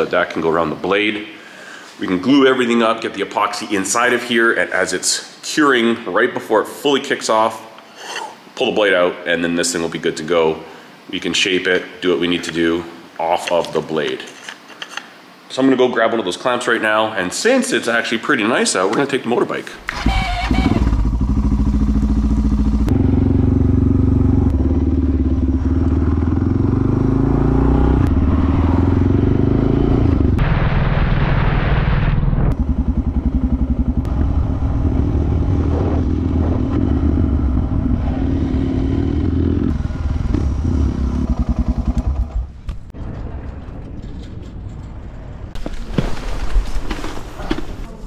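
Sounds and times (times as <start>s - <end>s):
motorcycle engine accelerating: 19.9s - 42.6s
wind rush on microphone: 34.0s - 38.0s.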